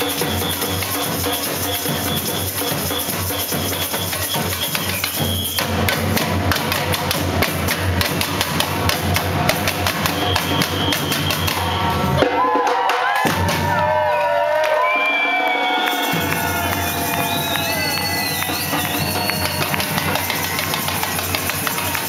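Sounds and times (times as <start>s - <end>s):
group of drummers playing: 0.0s - 22.0s
crowd cheering and whooping: 9.3s - 22.0s.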